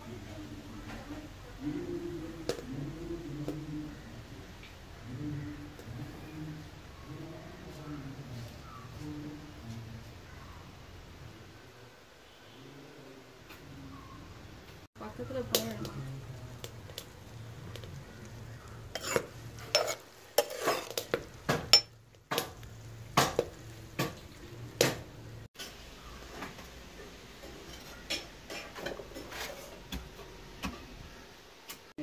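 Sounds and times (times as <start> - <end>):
metal spoon scraping metal pan: 18.8 - 22.0, 27.5 - 29.9.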